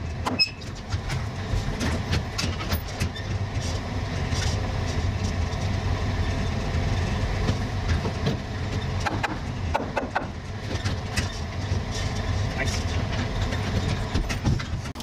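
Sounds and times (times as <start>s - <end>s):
sharp clicks and knocks: 7.4s - 15.0s.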